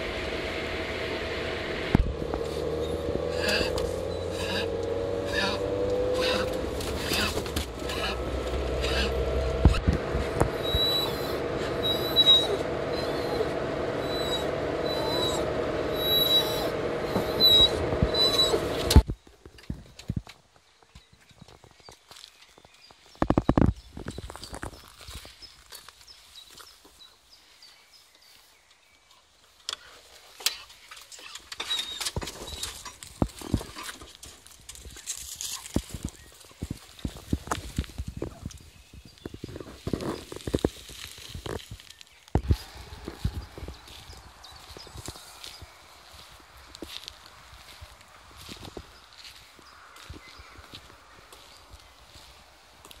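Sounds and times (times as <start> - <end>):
car road and engine noise: 0.0 - 19.2, 30.4 - 53.0.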